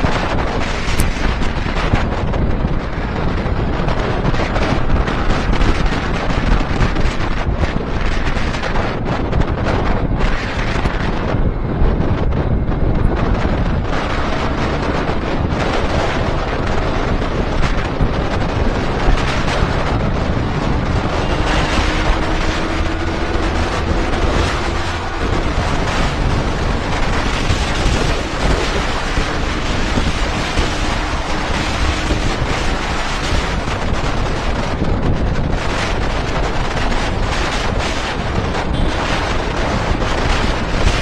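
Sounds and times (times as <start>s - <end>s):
wind buffeting microphone: 0.0s - 41.0s
faint motorcycle engine: 11.1s - 35.5s.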